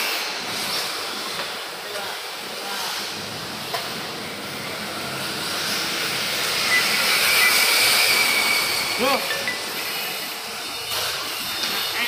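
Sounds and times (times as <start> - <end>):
rc buggies running hiss: 0.0 - 12.0
electric motor whine: 3.5 - 12.0.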